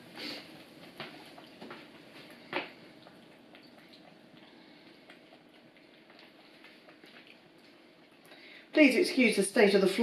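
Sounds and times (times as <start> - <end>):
cat licking wet smacking: 0.5 - 8.4.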